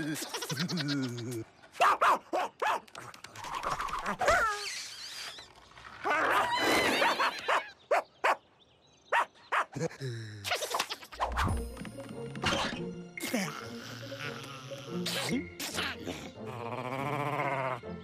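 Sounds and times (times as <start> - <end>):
high-pitched cartoon chattering: 0.0 - 1.4
cartoon dog whining yelps: 6.0 - 8.0.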